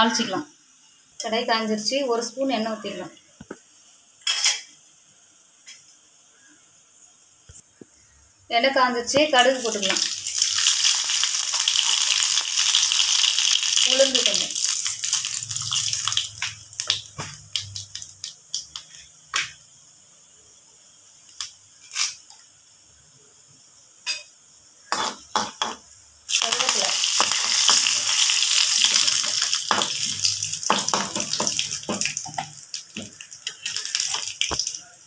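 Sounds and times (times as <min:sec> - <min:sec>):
seeds crackling in hot oil: 0:09.1 - 0:19.8, 0:20.8 - 0:22.8, 0:24.0 - 0:35.0
loud sizzle of leaves in oil: 0:09.3 - 0:20.0, 0:24.0 - 0:35.0.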